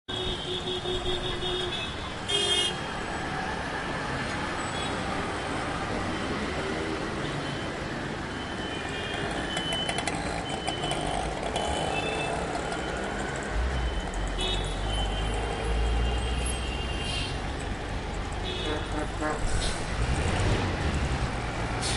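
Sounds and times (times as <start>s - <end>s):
passing cars and trucks: 0.1s - 21.9s
car horns honking: 18.4s - 19.5s.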